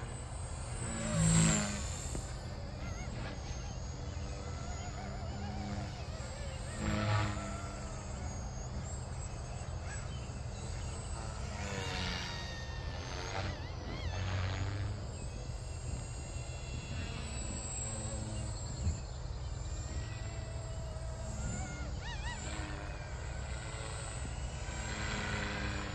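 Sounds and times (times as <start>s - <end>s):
model aircraft motor droning: 0.0s - 25.9s
steady low hum: 0.0s - 25.9s.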